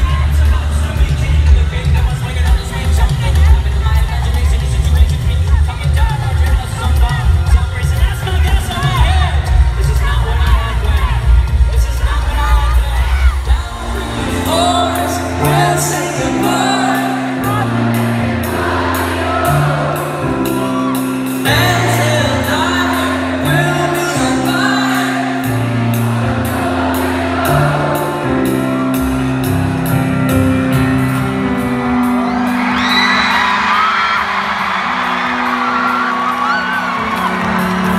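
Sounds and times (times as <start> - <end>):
live band music with singing: 0.0 - 37.9
crowd whooping and cheering: 17.3 - 23.9, 31.9 - 37.9.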